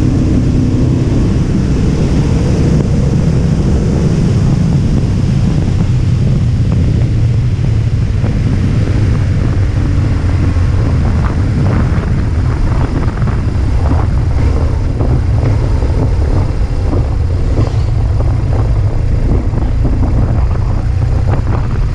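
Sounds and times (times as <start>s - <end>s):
motorcycle engine running: 0.0s - 21.9s
wind rumble on microphone: 0.0s - 21.9s.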